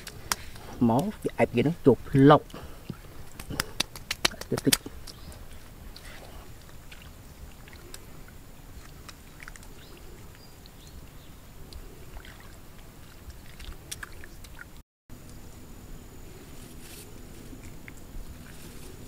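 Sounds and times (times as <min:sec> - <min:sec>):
hands splashing in muddy water: 0:02.8 - 0:09.9.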